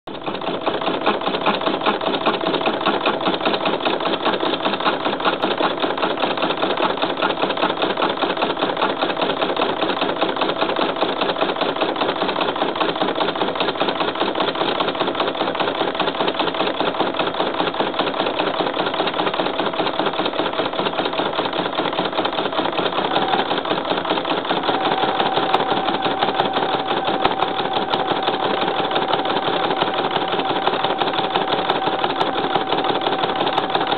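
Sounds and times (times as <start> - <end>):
embroidery machine needle clatter: 0.1 - 33.9
machine whine: 22.4 - 33.9.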